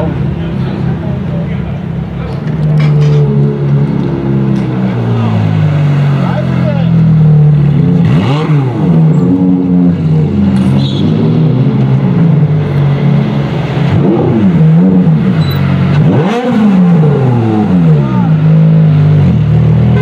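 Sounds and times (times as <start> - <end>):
car engines idling with throttle blips: 0.0 - 20.0.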